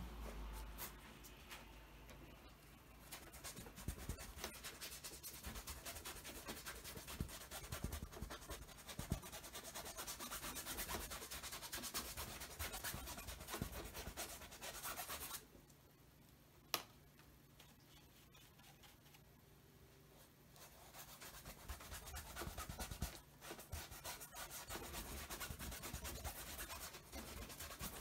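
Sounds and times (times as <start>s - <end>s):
paintbrush scrubbing canvas: 3.0s - 15.4s, 20.2s - 28.0s.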